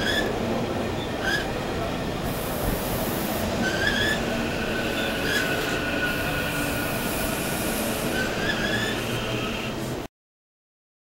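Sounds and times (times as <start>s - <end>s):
electric train rumbling: 0.0s - 10.1s
high wheel squeals: 3.6s - 9.7s.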